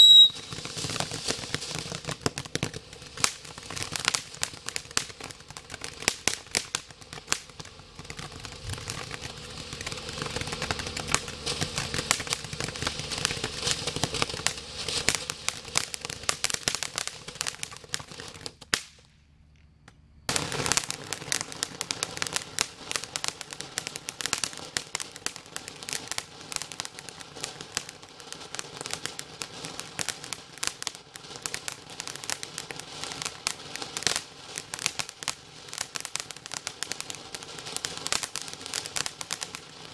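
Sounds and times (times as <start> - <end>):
firework sharp pop: 0.0 - 19.2
fireworks crackling and popping: 0.0 - 39.9.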